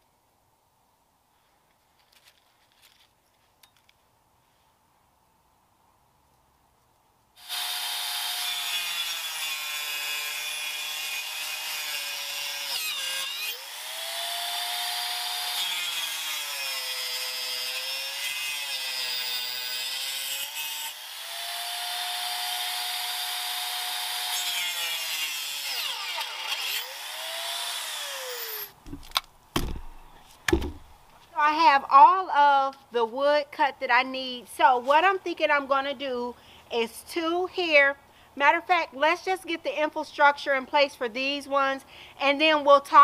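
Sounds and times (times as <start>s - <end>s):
electric saw cutting wood: 7.4s - 28.8s
knocks of objects set down: 28.8s - 30.9s.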